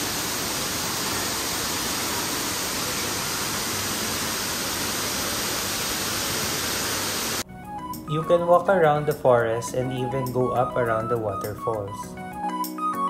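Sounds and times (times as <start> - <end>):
waterfall rushing: 0.0 - 7.4.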